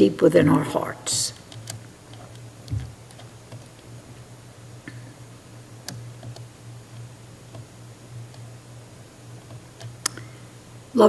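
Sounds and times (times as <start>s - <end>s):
steady low hum: 0.0s - 11.0s
faint irregular clicks: 1.3s - 5.1s, 5.8s - 8.6s, 9.4s - 10.3s.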